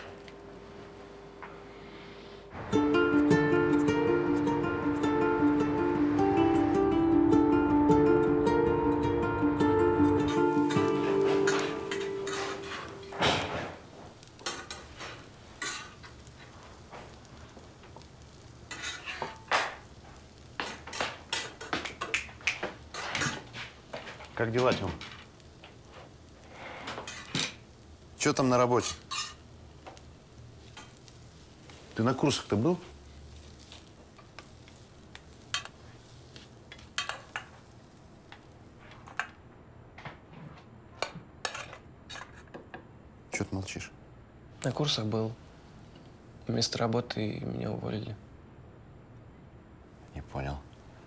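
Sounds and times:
cutlery clinking on plates: 0:10.7 - 0:13.7.

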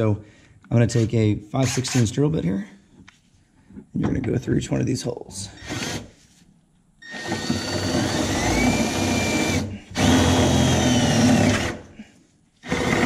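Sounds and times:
power drill whining under load: 0:05.6 - 0:06.1, 0:07.0 - 0:11.9, 0:12.6 - 0:13.0.

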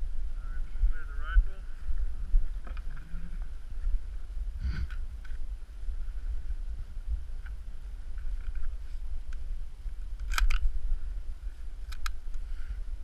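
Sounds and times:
wind buffeting microphone: 0:00.0 - 0:13.0
sharp clicks: 0:10.2 - 0:10.7, 0:11.8 - 0:12.4.

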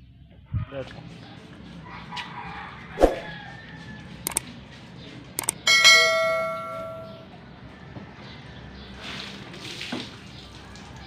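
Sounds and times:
sharp clicks: 0:05.4 - 0:05.6
metal object struck ringing: 0:05.7 - 0:07.3.

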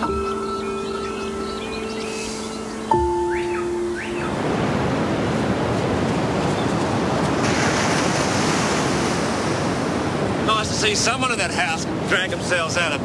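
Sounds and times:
waves breaking on a beach: 0:03.6 - 0:13.0.

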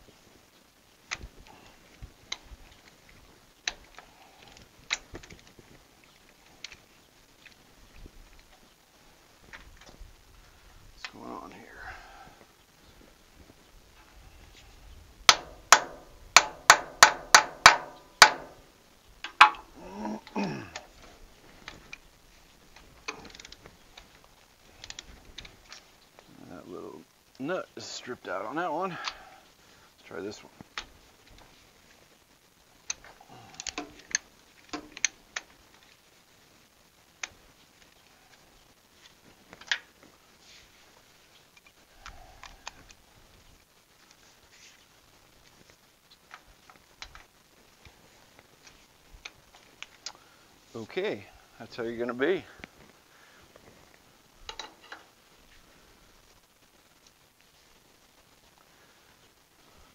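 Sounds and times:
hammer striking metal: 0:15.3 - 0:18.6.

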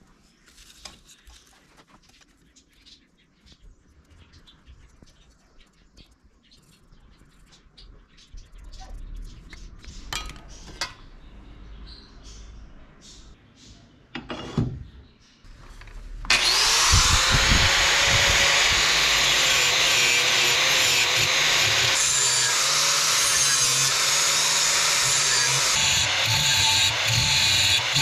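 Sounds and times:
angle grinder grinding steel: 0:16.3 - 0:28.0.

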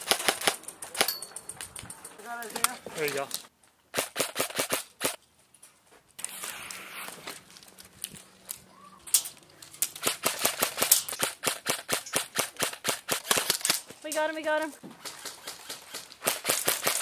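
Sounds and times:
airsoft guns firing: 0:00.0 - 0:01.1, 0:03.9 - 0:05.2, 0:09.9 - 0:13.9, 0:15.0 - 0:17.0
brief hiss: 0:06.2 - 0:07.3.

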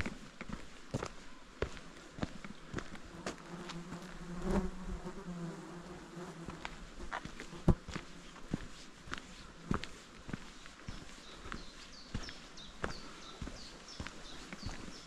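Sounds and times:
footsteps: 0:00.0 - 0:04.3, 0:06.4 - 0:15.0
insect buzzing: 0:03.2 - 0:08.0.

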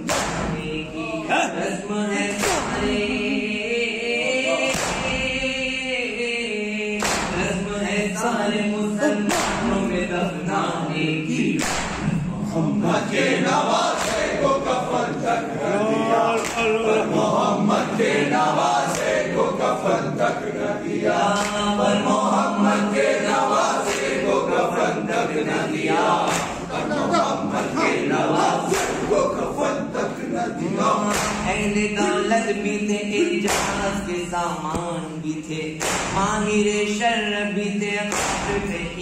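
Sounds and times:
chest-beating slaps: 0:00.0 - 0:00.8, 0:02.3 - 0:03.0, 0:04.6 - 0:05.4, 0:07.0 - 0:07.6, 0:09.3 - 0:09.9, 0:11.5 - 0:12.3, 0:13.8 - 0:14.8, 0:16.3 - 0:16.8, 0:18.8 - 0:19.3, 0:21.3 - 0:21.8, 0:23.8 - 0:24.3, 0:26.2 - 0:26.9, 0:28.7 - 0:29.2, 0:31.0 - 0:31.9, 0:33.4 - 0:35.1, 0:35.8 - 0:36.3, 0:38.1 - 0:38.8
lead reciter on microphone: 0:00.0 - 0:39.0
men chanting: 0:00.0 - 0:39.0.

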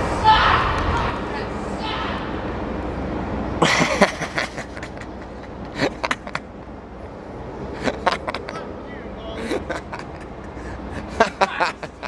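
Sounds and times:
man laughing and hollering: 0:03.6 - 0:06.4, 0:07.8 - 0:12.0.

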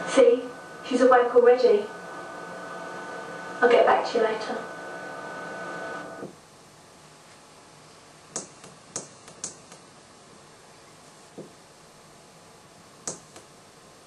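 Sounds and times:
steady hum: 0:00.0 - 0:14.0
sharp short clicks: 0:08.3 - 0:09.8, 0:13.0 - 0:13.5.

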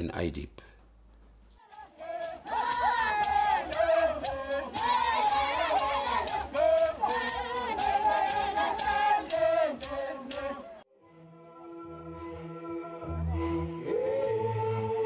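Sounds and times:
sharp rhythmic clicks: 0:01.6 - 0:10.6
dancers chanting and singing: 0:01.6 - 0:10.8.

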